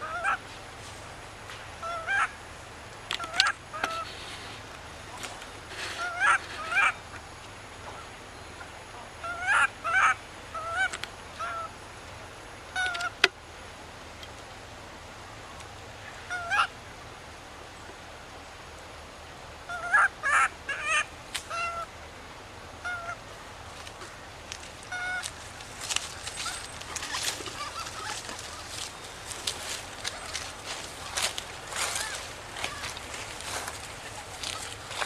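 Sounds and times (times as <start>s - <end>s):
baby monkey crying: 5.8s - 7.0s, 19.7s - 21.9s, 24.8s - 25.3s, 26.1s - 33.2s.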